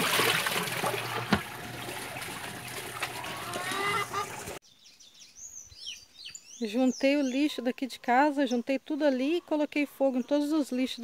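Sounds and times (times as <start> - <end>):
washing machine churning: 0.0 - 4.6
water sloshing and splashing: 0.0 - 4.6.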